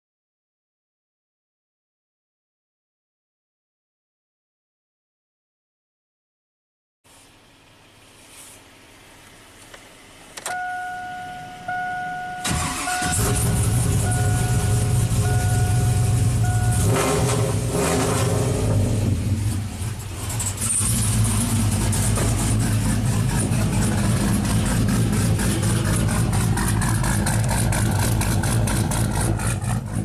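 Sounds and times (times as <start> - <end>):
truck engine idling: 7.3 - 17.8, 18.5 - 30.0
two-tone cab chime: 10.4 - 17.3.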